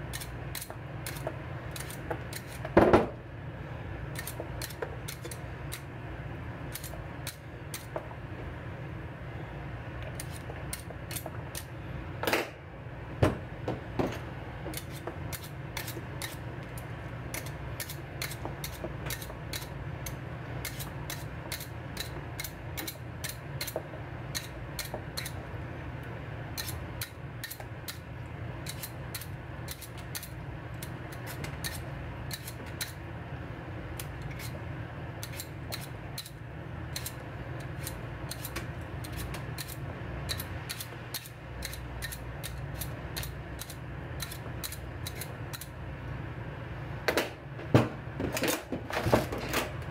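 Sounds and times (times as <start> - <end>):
knife peeling potato: 0.0 - 2.8, 4.1 - 5.9, 6.7 - 8.0, 10.0 - 11.8, 14.7 - 25.5, 26.5 - 33.1, 33.9 - 45.8.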